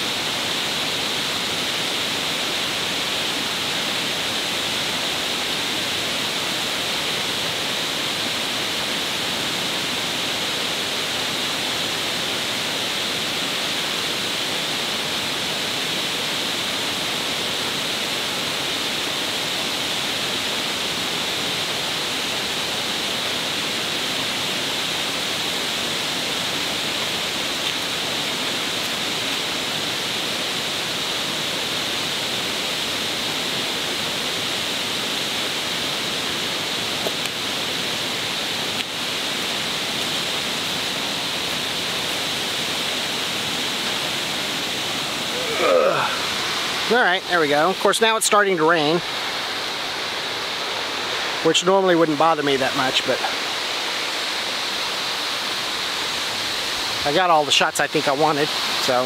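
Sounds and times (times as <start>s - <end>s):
water pouring over waterfall: 0.0s - 59.0s.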